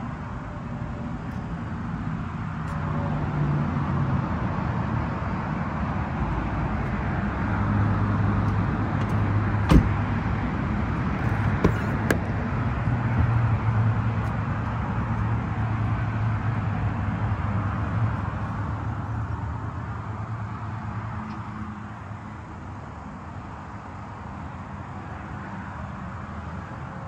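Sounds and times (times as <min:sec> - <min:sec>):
car door latch clicking open: 0:09.0 - 0:10.0.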